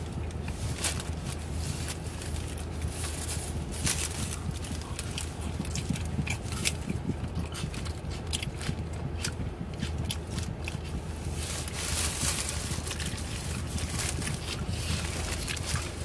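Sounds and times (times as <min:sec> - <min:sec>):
person chewing sandwich: 0:00.0 - 0:16.0
steady low hum: 0:00.0 - 0:16.0
paper wrapper crinkling: 0:00.5 - 0:05.4, 0:11.3 - 0:16.0.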